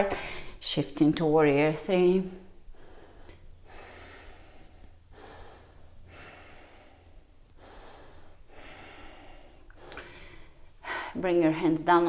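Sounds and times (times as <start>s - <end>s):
woman breathing with effort: 0.0s - 0.6s, 2.4s - 11.2s.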